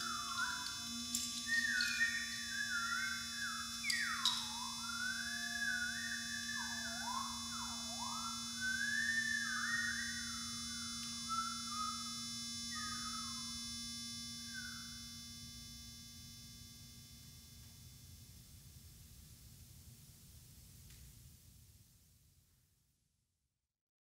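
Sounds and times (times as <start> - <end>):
electronic tone gliding in pitch: 0.0 - 15.2.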